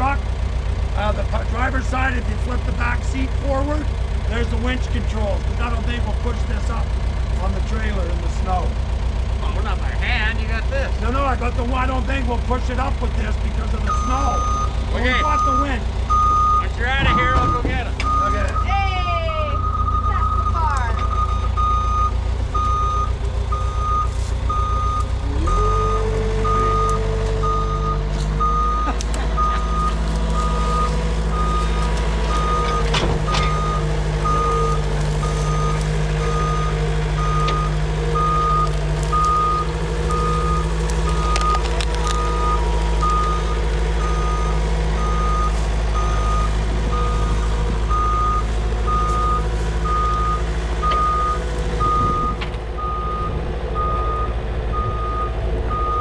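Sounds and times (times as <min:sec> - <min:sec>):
skid steer engine revving: 0:00.0 - 0:56.0
backup alarm beeping: 0:13.8 - 0:56.0.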